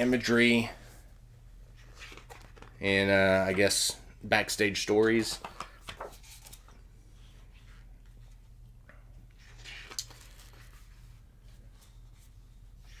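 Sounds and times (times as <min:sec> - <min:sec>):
low steady hum: 0:00.0 - 0:13.0
book pages turning: 0:01.8 - 0:02.8, 0:05.4 - 0:06.8, 0:09.3 - 0:13.0.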